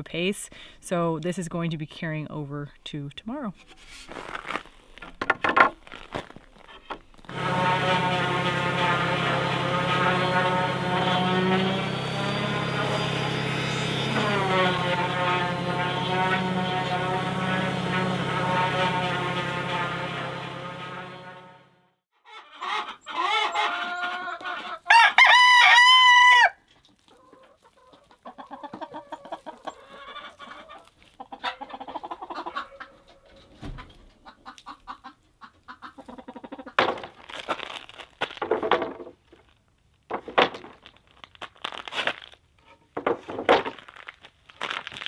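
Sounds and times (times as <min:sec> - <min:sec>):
hens clucking: 0:22.3 - 0:24.9, 0:26.9 - 0:36.8
chickens calling: 0:22.3 - 0:36.8
rooster crowing: 0:24.9 - 0:26.6.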